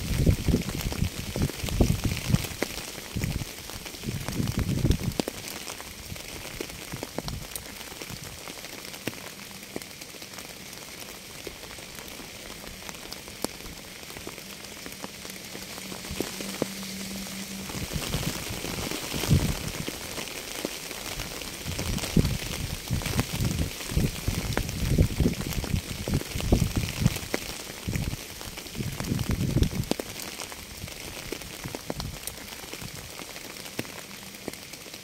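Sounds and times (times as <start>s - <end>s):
low gusty rumble: 0.0s - 5.2s, 11.5s - 29.9s
rain falling: 0.0s - 35.0s
sharp raindrops hitting: 0.0s - 35.0s.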